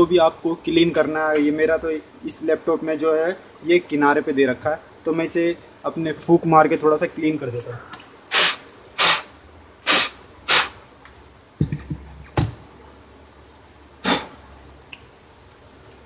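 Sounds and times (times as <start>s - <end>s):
person blowing puffs of breath: 8.3s - 10.8s, 14.0s - 14.4s.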